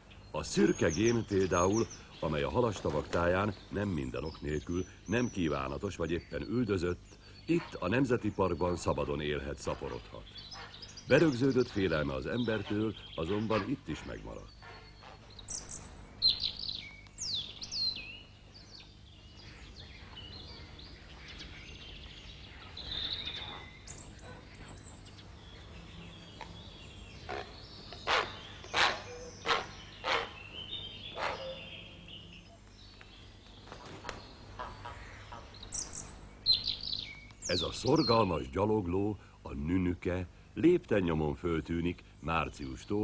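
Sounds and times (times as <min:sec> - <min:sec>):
short harsh bird calls: 0:09.7 - 0:17.4, 0:27.2 - 0:32.6.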